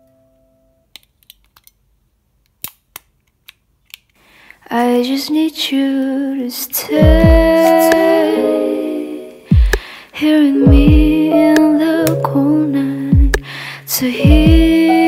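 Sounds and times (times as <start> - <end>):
music with singing: 6.8 - 15.0.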